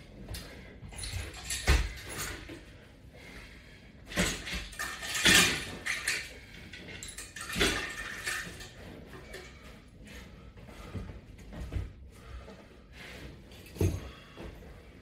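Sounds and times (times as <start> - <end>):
man breathing: 0.0 - 4.2, 8.5 - 15.0.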